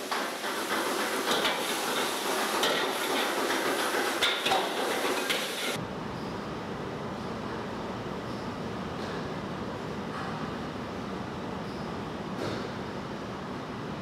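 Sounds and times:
sizzling hiss: 0.0 - 5.8.

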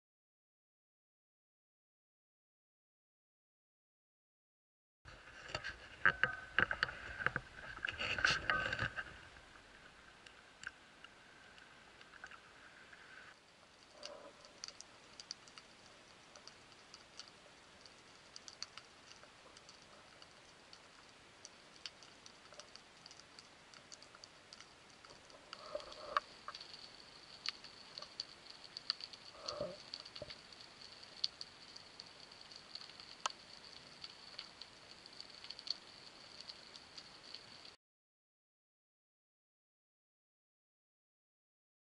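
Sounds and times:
underwater crackle of clicks: 5.4 - 12.4, 13.7 - 37.8.

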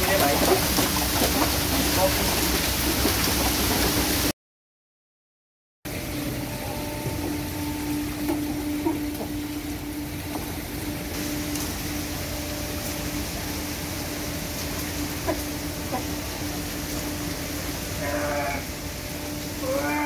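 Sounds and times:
engine hum: 5.9 - 19.7.

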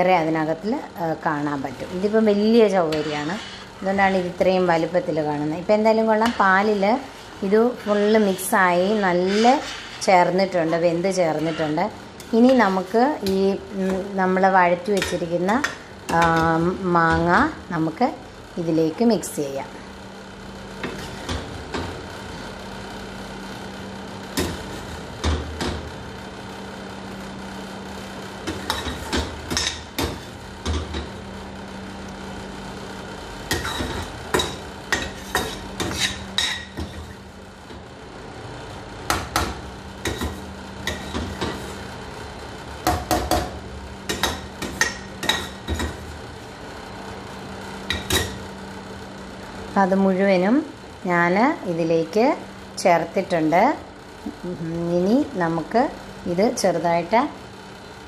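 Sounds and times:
spoon scraping a steel pan: 2.8 - 3.8, 7.7 - 13.0, 33.5 - 37.1.

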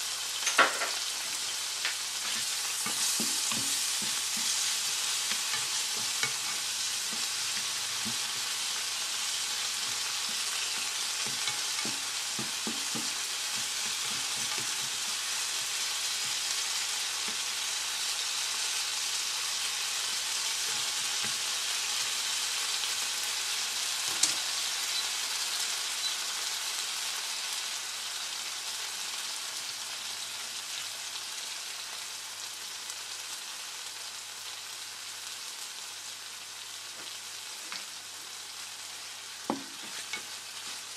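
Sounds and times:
tomatoes sizzling in hot oil: 0.0 - 40.9
spatula scraping a pan: 2.2 - 15.7, 39.5 - 40.8.

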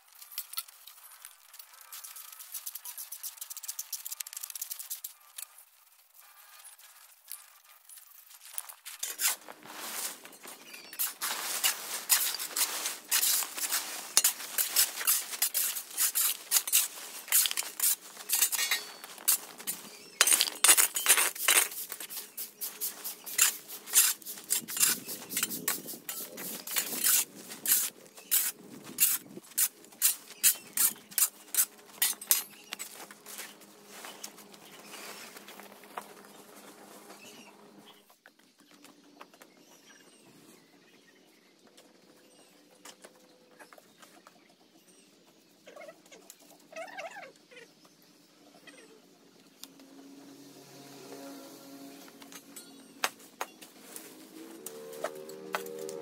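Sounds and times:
hard objects clattering and clinking: 12.0 - 22.1.

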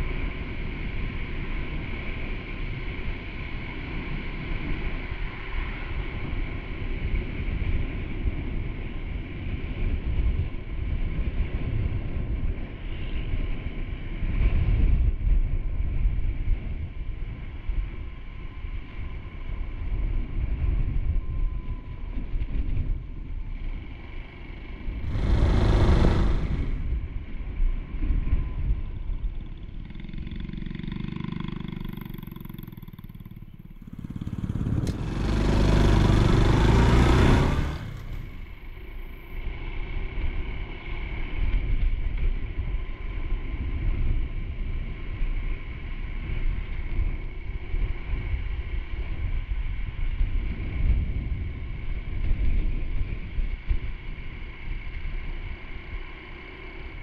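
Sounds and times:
wind rumbling on microphone: 0.0 - 57.0
motorcycle engine running: 22.5 - 43.6
loud rush of noise: 25.0 - 27.1, 33.8 - 38.5.

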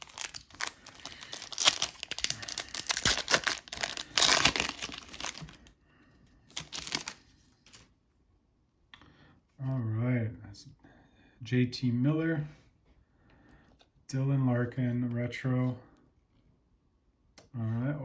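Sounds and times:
foil wrapper tearing and crinkling: 0.0 - 5.6, 6.5 - 7.2.

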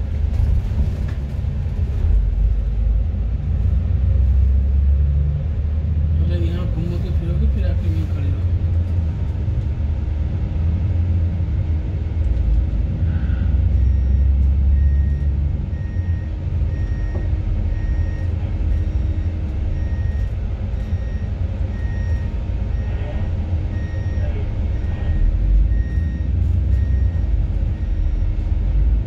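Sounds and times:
bus engine rumble: 0.0 - 29.0
short electronic beeps: 13.8 - 23.0, 23.7 - 28.3.

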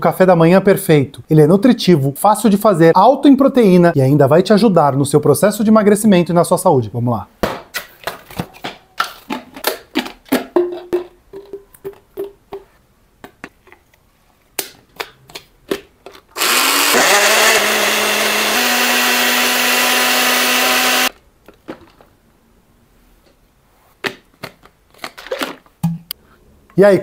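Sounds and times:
blender motor whirring: 16.4 - 21.2.

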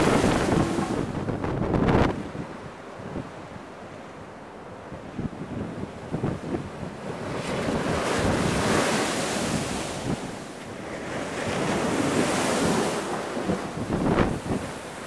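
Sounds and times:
waves breaking on sea wall: 0.0 - 3.3, 6.1 - 15.0
wind buffeting microphone: 0.0 - 4.0, 4.7 - 15.0
water rushing: 0.0 - 4.8.

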